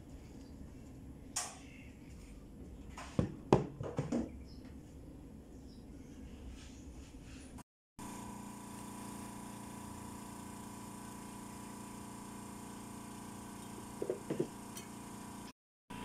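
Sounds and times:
pneumatic air drill whirring: 0:08.0 - 0:15.6.

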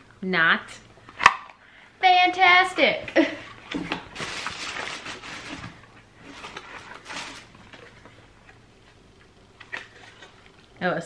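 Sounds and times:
packaging rustling and clicking: 0:03.6 - 0:08.6.

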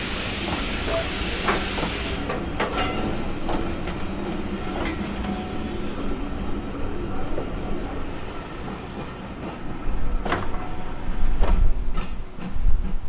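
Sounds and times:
steam hiss: 0:00.0 - 0:02.4
train rumble: 0:00.0 - 0:13.0
train wheels clicking over rail joints: 0:00.3 - 0:05.4, 0:08.6 - 0:13.0.

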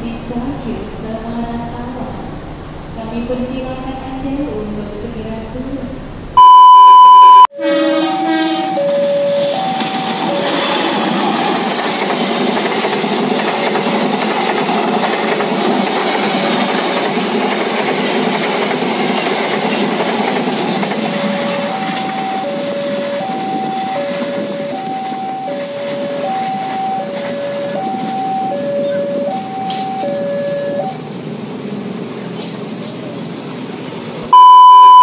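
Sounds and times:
train wheels rumbling on rail: 0:08.7 - 0:34.3.

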